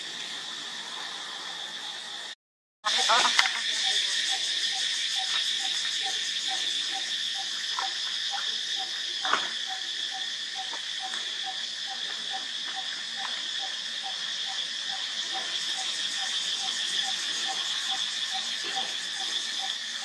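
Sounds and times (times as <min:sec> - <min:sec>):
insects droning: 0:00.0 - 0:20.0.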